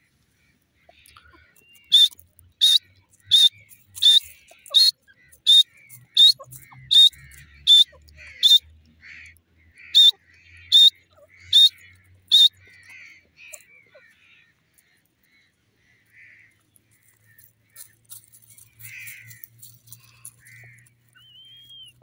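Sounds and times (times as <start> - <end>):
bird calling sharp high notes: 1.7 - 8.7, 9.9 - 12.7.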